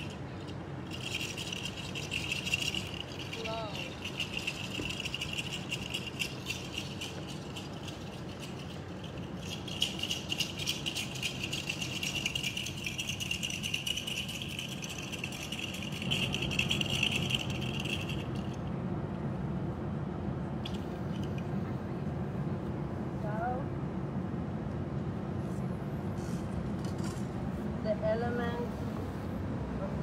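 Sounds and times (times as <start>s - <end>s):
hand rattle clattering: 0.0s - 18.7s, 20.6s - 21.5s.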